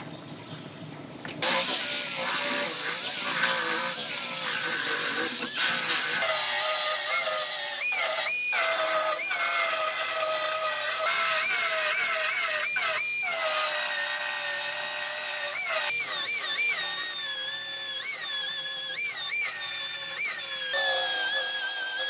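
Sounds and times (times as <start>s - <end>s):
grinding on steel: 19.6s - 22.0s.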